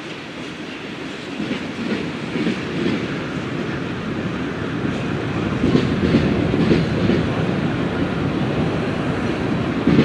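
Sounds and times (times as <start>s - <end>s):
train wheels rumbling on rails: 0.0s - 10.0s
wheels clacking on track: 4.8s - 7.5s, 8.5s - 10.0s.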